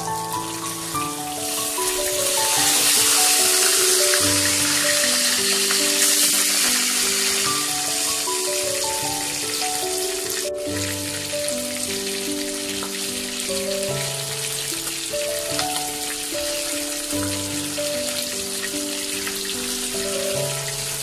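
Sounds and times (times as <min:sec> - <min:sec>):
background music with held notes: 0:00.0 - 0:21.0
fish sizzling in hot oil: 0:00.0 - 0:21.0.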